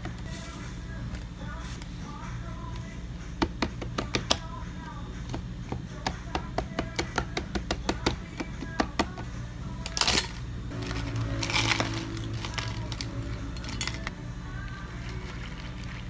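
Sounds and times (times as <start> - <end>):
ice cubes rattling into cup: 10.0 - 14.0.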